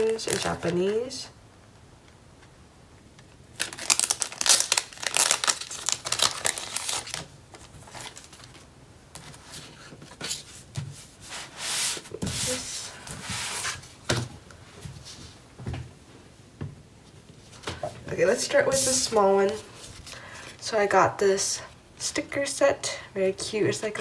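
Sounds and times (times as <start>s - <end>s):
plastic wrapping crinkling: 0.0s - 1.1s, 3.5s - 10.2s
rustling and handling: 3.2s - 20.6s.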